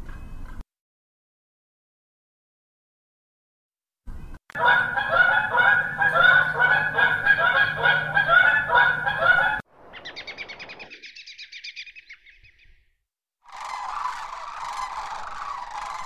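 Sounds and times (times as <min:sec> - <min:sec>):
geese honking: 0:04.6 - 0:09.6, 0:13.5 - 0:16.0.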